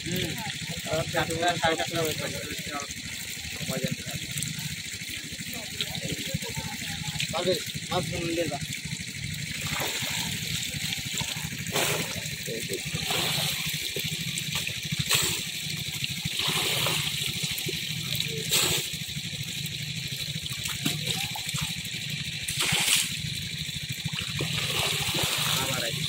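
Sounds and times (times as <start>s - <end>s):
water running through a channel: 0.0s - 26.0s
low hum: 8.9s - 26.0s.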